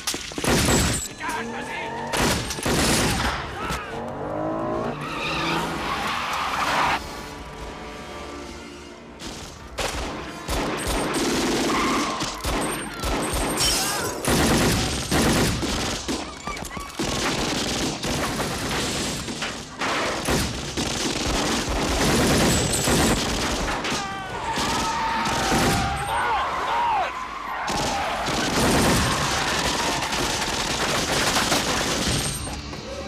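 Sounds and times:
rapid gunshots in bursts: 0.0 - 1.1, 2.1 - 3.3, 9.8 - 25.9, 27.7 - 32.6.

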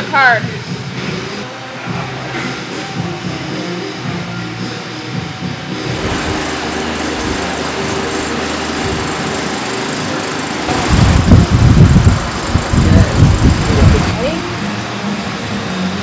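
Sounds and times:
pedestal fan whirring: 0.0 - 16.0
loud uneven low rumble: 10.6 - 14.9.

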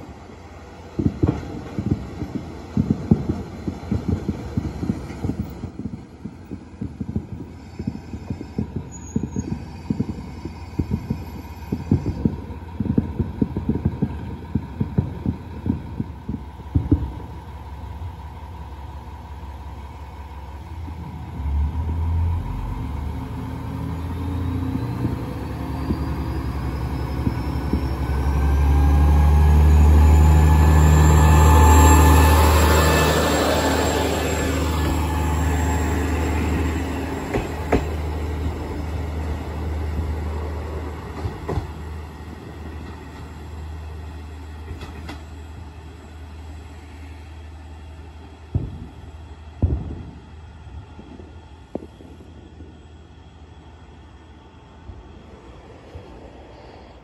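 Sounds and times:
railcar wheels knocking: 0.9 - 17.5, 33.1 - 43.5, 44.6 - 45.4
diesel engine throbbing: 20.4 - 43.0.

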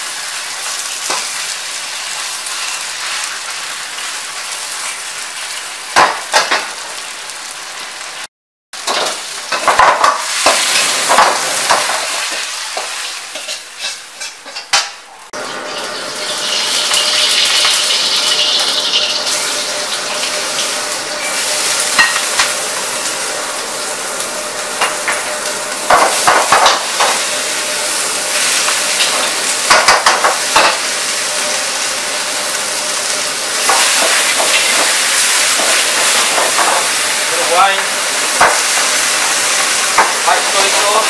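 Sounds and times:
onions and pork sizzling in oil: 0.0 - 41.0
metal ladle scraping a wok: 13.3 - 14.7.

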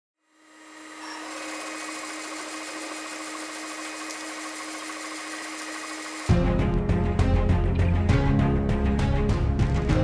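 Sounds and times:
engraving machine on wood: 0.5 - 6.4.

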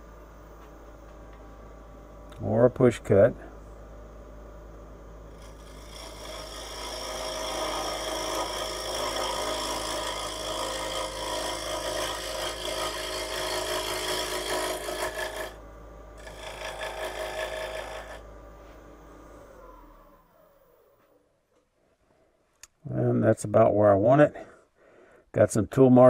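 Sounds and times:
lathe motor hum: 4.8 - 21.2
gouge scraping spinning wood: 5.3 - 15.6, 16.2 - 18.2.

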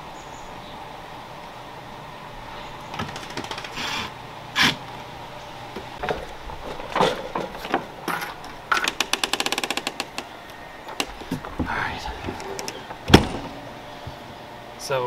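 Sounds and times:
rapid rattling clicks: 2.9 - 4.0, 7.4 - 10.3
door latch clicks and knocks: 12.2 - 13.6.

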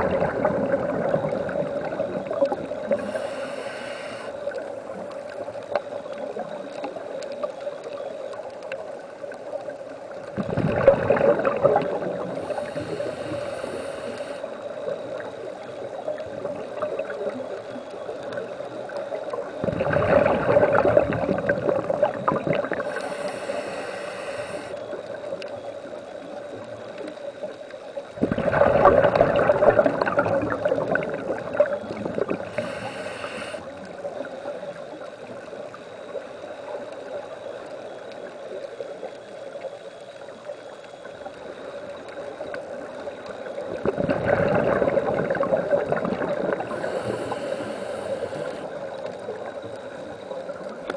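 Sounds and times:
gurgling exhaled bubbles: 0.0 - 50.9
steady background hiss: 0.0 - 50.9
high-pitched regulator hisses: 2.9 - 4.6, 12.4 - 15.2, 22.8 - 24.9, 32.4 - 33.9, 46.6 - 49.0.

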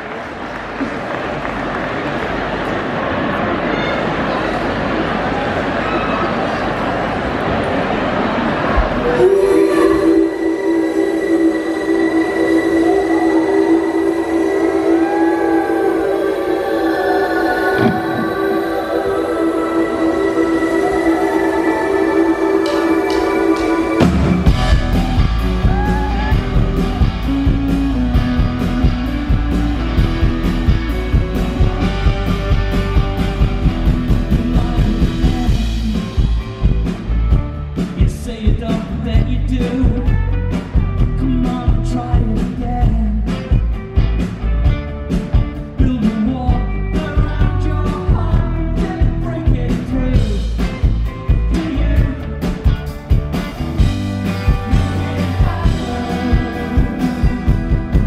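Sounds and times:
man singing lead vocal: 8.9 - 29.8, 33.7 - 36.9, 37.8 - 43.6, 45.6 - 52.7, 54.4 - 58.0
live rock band playing: 22.4 - 58.0.

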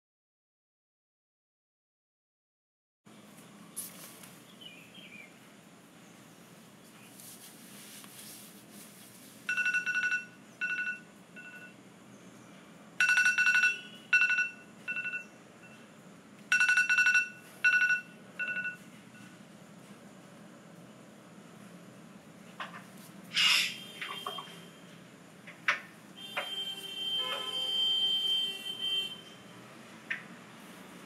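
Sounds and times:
phone alarm beeping: 9.5 - 11.8, 13.0 - 15.9, 16.5 - 19.3, 26.2 - 29.1.

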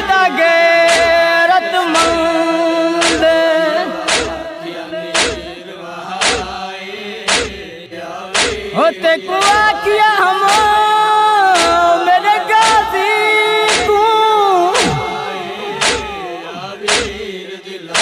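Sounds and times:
man chanting a lament: 0.0 - 18.0
steady beat: 3.0 - 3.3, 4.1 - 4.5, 5.2 - 5.5, 6.2 - 6.5, 7.3 - 7.6, 8.4 - 8.7, 13.7 - 14.1, 14.7 - 17.3.

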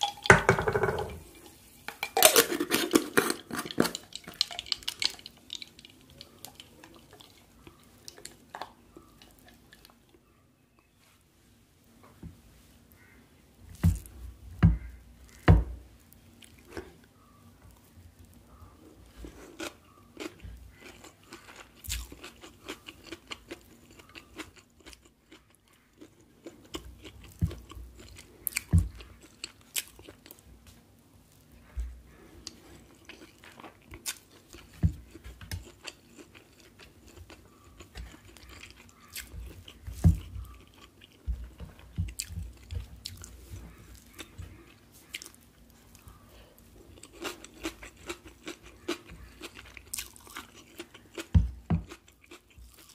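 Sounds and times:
chewing and crunching food: 2.2 - 10.4, 16.2 - 52.9.

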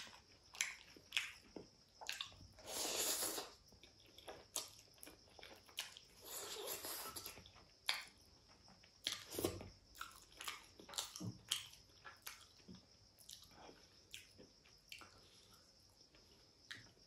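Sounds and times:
chewing mouth sounds: 0.0 - 8.1, 9.0 - 12.6.

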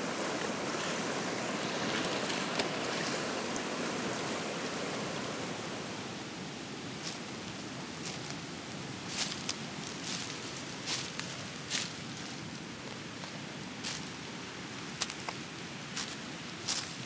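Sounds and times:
rushing mountain river: 0.0 - 17.0
footsteps on dry leaves: 9.1 - 12.0.

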